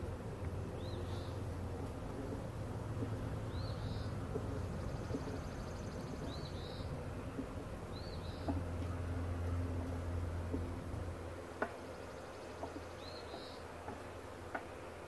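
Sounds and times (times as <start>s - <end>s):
bird chirping: 0.8s - 1.4s, 3.4s - 7.0s, 7.9s - 8.6s, 11.9s - 13.7s.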